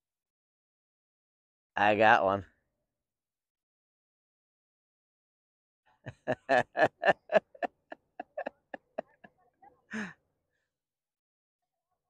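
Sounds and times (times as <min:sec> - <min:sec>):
man laughing: 0:06.1 - 0:09.3, 0:09.9 - 0:10.1.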